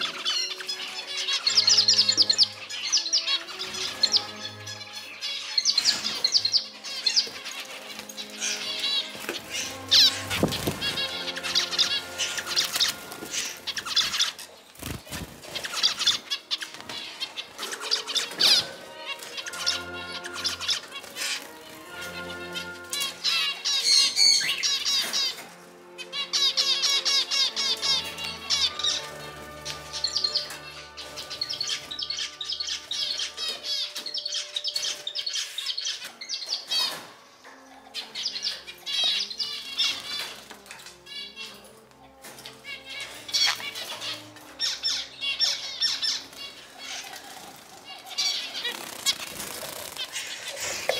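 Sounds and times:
background music: 0.0s - 50.9s
finches chirping and singing: 0.0s - 50.9s
wing flutters: 47.0s - 50.9s.

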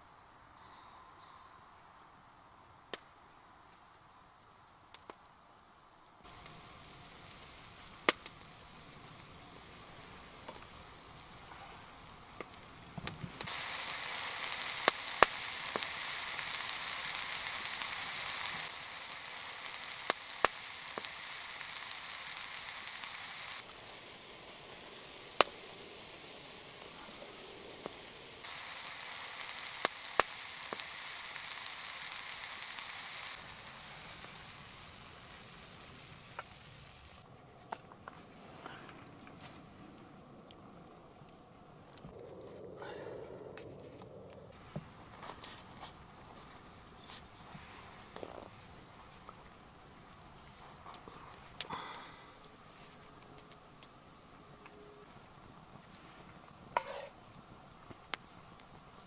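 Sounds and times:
burning wood crackling and popping: 2.2s - 59.0s
vegetables sizzling in frying pan: 6.2s - 37.2s, 56.7s - 59.0s.

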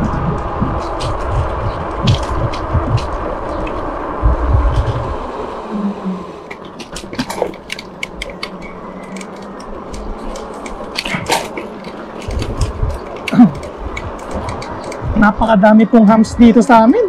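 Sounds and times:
tyre and wind noise: 0.0s - 17.0s
wind rumble on microphone: 0.0s - 17.0s
clicks and rattles: 6.5s - 15.1s.

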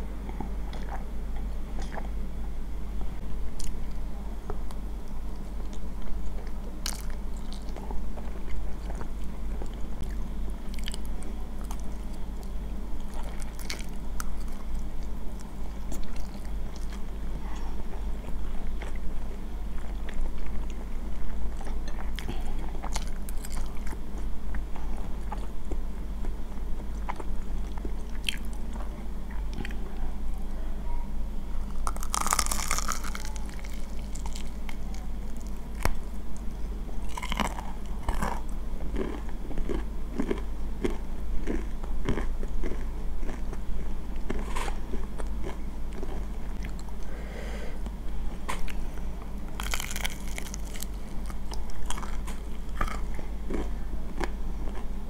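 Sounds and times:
chewing: 4.7s - 30.0s, 31.6s - 47.1s, 49.5s - 54.9s
crunching bites into fried crust: 31.7s - 36.0s, 37.1s - 43.4s, 49.6s - 54.8s.

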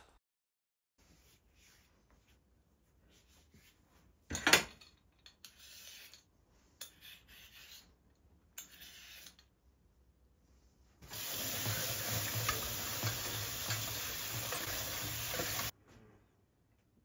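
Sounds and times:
peeler scraping a carrot: 5.4s - 8.0s, 8.6s - 9.5s.

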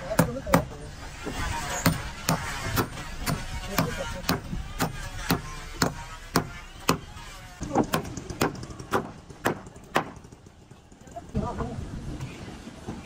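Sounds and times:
hand tool striking wood: 1.3s - 10.5s.

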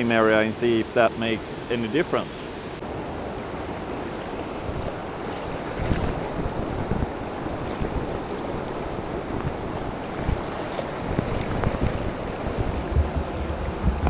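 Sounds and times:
river water rushing: 0.0s - 14.0s
wind buffeting microphone: 2.8s - 14.0s.

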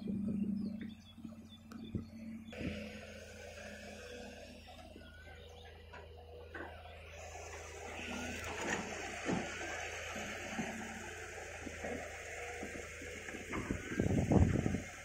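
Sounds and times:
distant diesel engine hum: 0.0s - 15.0s
bird chirps: 0.1s - 2.7s, 4.0s - 7.2s.

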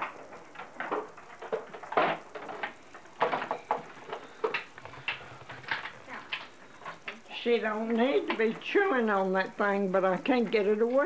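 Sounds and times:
objects clicking and knocking: 0.0s - 7.2s.

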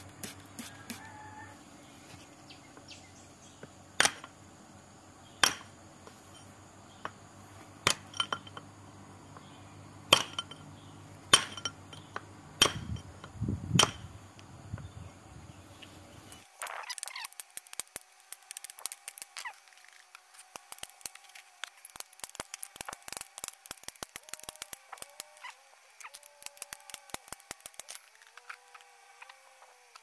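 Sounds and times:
hammer striking steel chisel: 11.3s - 13.1s, 13.8s - 14.1s.

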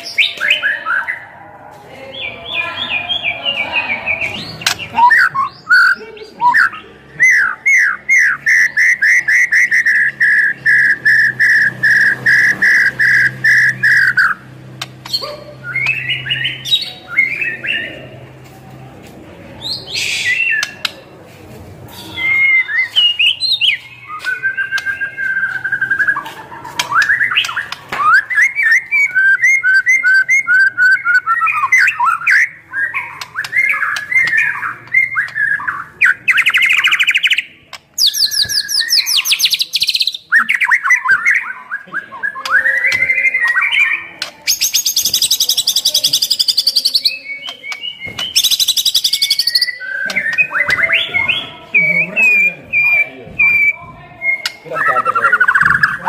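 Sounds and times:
bird whistling song: 2.2s - 14.4s, 15.0s - 18.0s, 19.6s - 20.9s, 21.9s - 56.0s.

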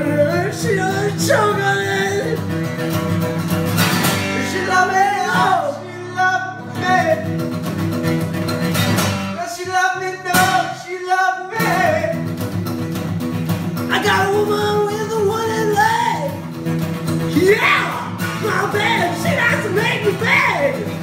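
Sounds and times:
man singing: 0.0s - 2.7s, 4.2s - 7.4s, 9.3s - 12.5s, 13.8s - 16.5s, 17.2s - 21.0s
acoustic guitar strumming: 0.0s - 21.0s.

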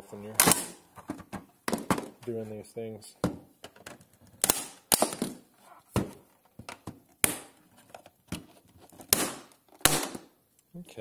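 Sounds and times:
sharp plastic snaps and clicks: 3.6s - 5.4s.

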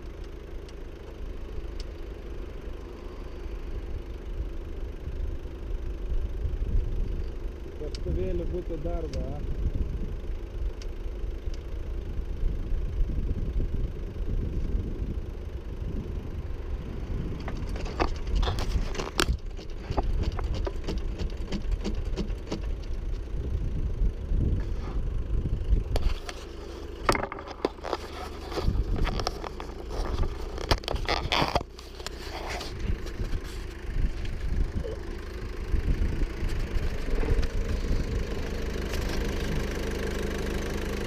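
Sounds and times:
diesel engine running: 0.0s - 41.0s
bucket knocking and scraping: 26.0s - 33.7s.

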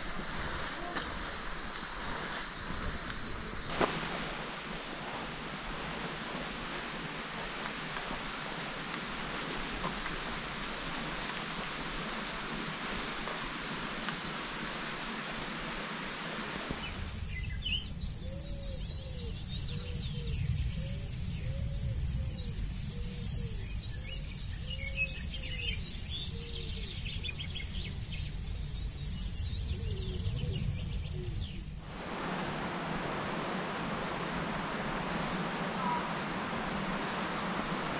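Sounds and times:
high steady whining tones: 0.0s - 23.1s
steady hiss: 0.0s - 37.9s
birds chirping and calling: 17.4s - 28.3s.

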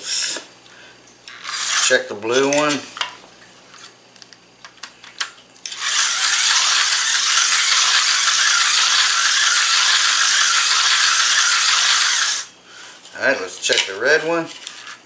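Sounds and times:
slot car motor buzzing rattle: 5.7s - 12.5s.

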